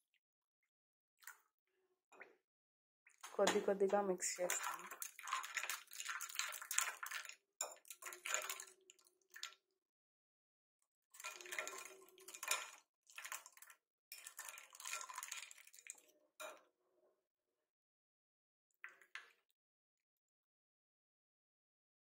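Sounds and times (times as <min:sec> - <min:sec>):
whisk clinking in glass bowl: 0:11.2 - 0:13.5.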